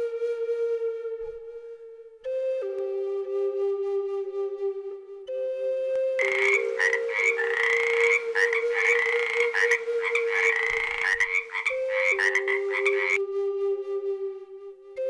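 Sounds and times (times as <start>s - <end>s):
frogs croaking in chorus: 6.2s - 13.2s.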